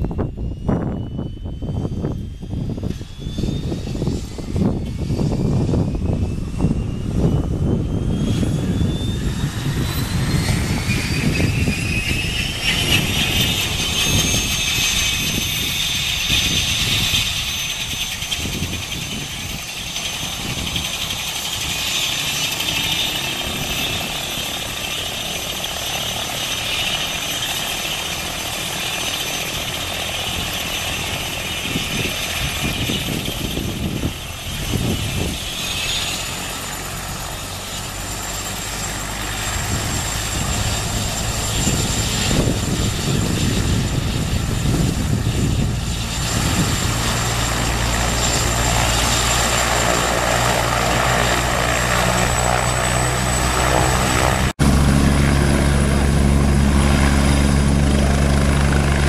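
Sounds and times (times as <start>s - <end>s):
helicopter turbine whine: 0.0s - 59.0s.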